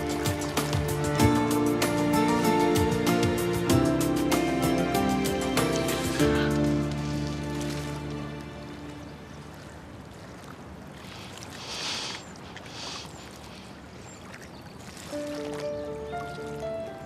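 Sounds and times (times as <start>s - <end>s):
water lapping against quay: 0.0s - 3.2s, 5.4s - 17.0s
background music: 0.0s - 9.6s, 15.2s - 17.0s.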